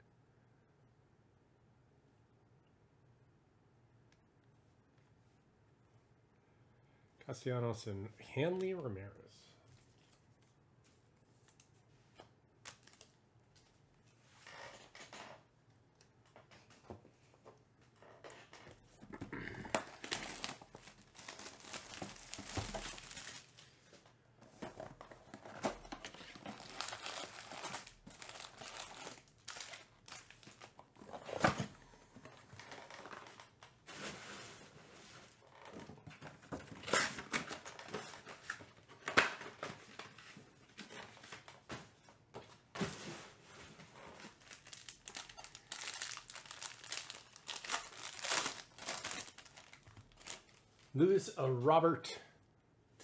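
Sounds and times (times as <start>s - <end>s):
foil packs crinkling and tearing: 12.6s - 13.1s, 19.8s - 23.7s, 25.4s - 30.9s, 43.9s - 51.0s.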